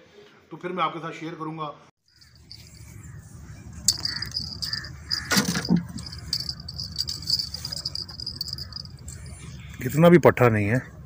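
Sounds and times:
insects chirring: 2.1 - 9.4.

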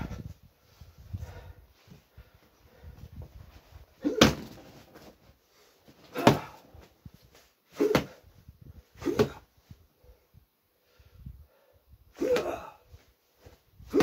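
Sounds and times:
punches thudding on heavy bag: 4.1 - 4.7, 6.1 - 6.6, 7.8 - 8.2, 9.0 - 9.4.

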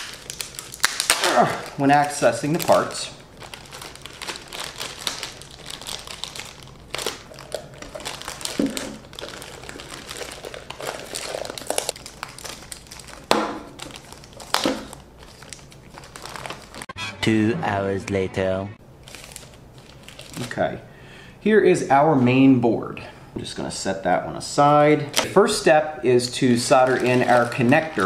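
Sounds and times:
plastic bags crinkling: 0.0 - 16.9, 19.0 - 20.7, 26.3 - 28.0.

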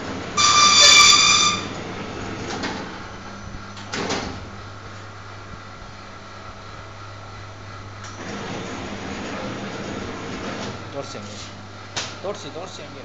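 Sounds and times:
high-pitched mechanical squeal: 0.4 - 1.8.

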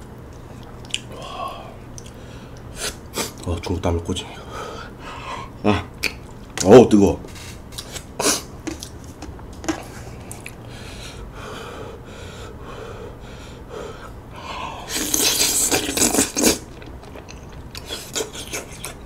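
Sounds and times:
soft chewing: 0.2 - 2.7, 7.4 - 10.7, 15.0 - 19.0
loud wet slurping of noodles: 14.8 - 16.8.

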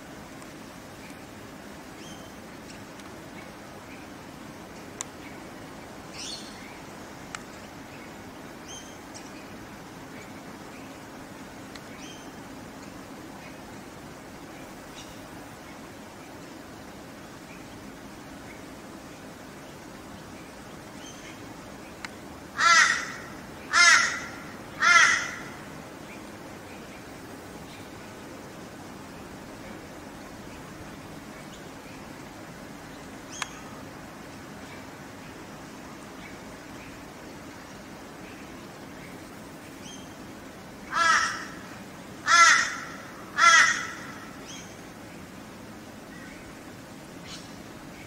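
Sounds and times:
kookaburra harsh calls: 22.6 - 25.7, 40.9 - 44.4.

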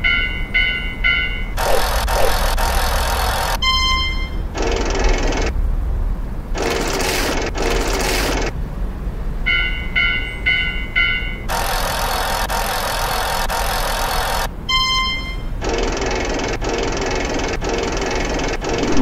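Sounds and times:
short noise bursts: 1.6 - 3.8, 6.6 - 8.5, 11.5 - 14.5, 15.6 - 19.0
crossing bell dings: 9.5 - 11.4
steady low rumble: 18.6 - 19.0.

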